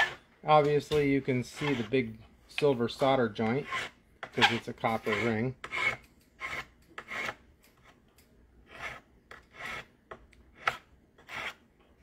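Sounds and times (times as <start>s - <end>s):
hand file rasping on metal: 0.0s - 0.2s, 1.4s - 2.0s, 3.4s - 7.4s, 8.7s - 9.9s, 10.6s - 11.6s.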